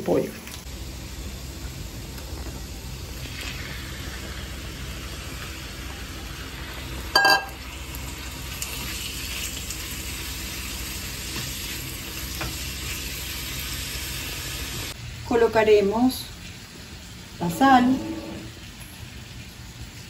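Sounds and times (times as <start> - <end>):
meat sizzling in a pan: 0.2 - 15.8.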